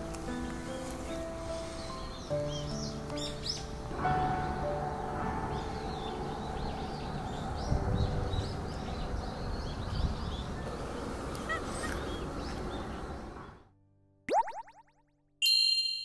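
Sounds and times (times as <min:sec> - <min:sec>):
outdoor background noise: 0:00.0 - 0:13.7
small birds chirping: 0:01.4 - 0:04.8, 0:05.5 - 0:13.6.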